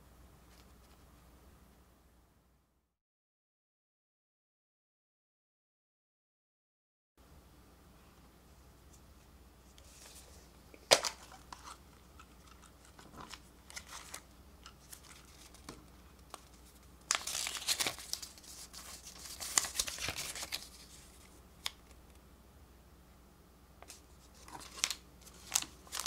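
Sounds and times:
paper crinkling: 0:09.7 - 0:22.0, 0:23.8 - 0:26.0.

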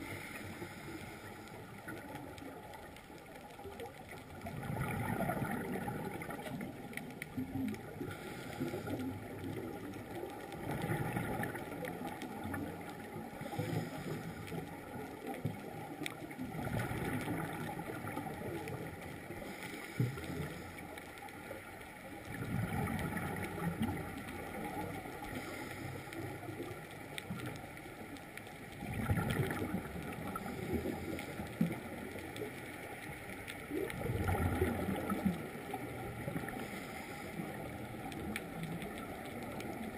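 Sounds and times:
bubbles gurgling underwater: 0:01.8 - 0:20.6, 0:21.4 - 0:27.8, 0:28.7 - 0:32.5, 0:33.6 - 0:36.7
diver breathing through regulator: 0:08.1 - 0:09.1, 0:13.4 - 0:14.6, 0:36.6 - 0:37.6.

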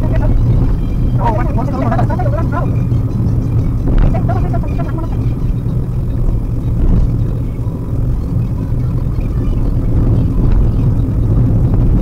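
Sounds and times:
car engine rumble: 0:00.0 - 0:12.0
road noise inside car: 0:00.0 - 0:12.0.

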